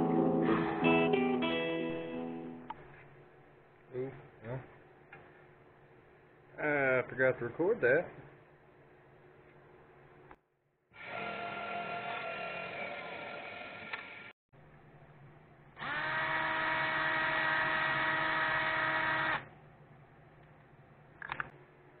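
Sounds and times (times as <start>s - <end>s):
cordless drill boring wood: 11.0s - 14.3s, 15.8s - 19.5s
power tool motor running: 11.0s - 14.3s, 15.8s - 19.5s.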